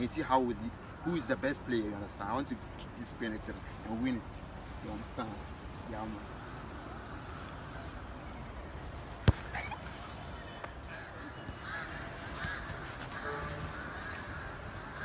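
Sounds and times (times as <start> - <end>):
outdoor background noise: 0.0 - 15.0
faint short calls: 13.1 - 14.6.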